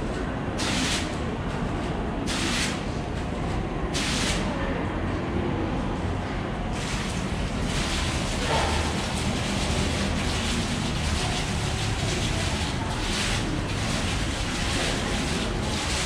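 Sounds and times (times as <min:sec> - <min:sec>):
water curtain splashing into basin: 0:06.8 - 0:16.0.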